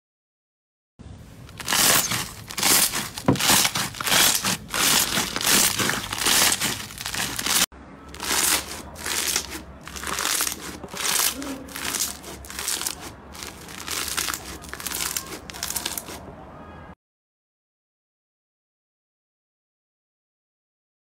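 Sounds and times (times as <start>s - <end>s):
crunchy slime crackling: 1.4s - 16.2s.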